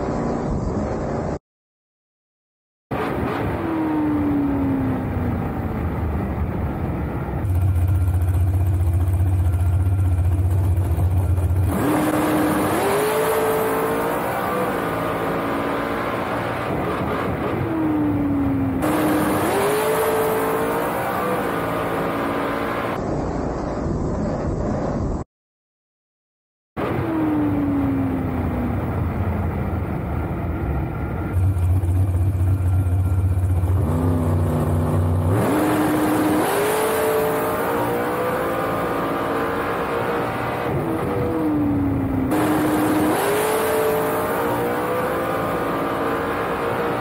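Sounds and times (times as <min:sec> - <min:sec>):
dragster engine: 0:06.6 - 0:16.2, 0:31.0 - 0:39.9.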